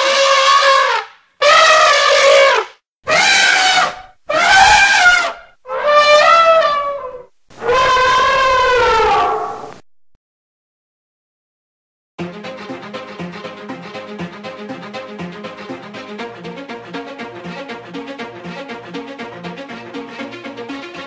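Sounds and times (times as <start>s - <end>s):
elephants trumpeting: 0.0s - 9.7s.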